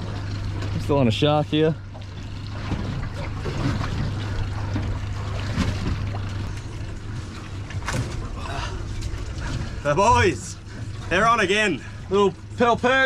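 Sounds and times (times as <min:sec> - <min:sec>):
boat engine low hum: 0:00.0 - 0:13.0
water noise: 0:00.0 - 0:13.0
wind: 0:00.0 - 0:13.0.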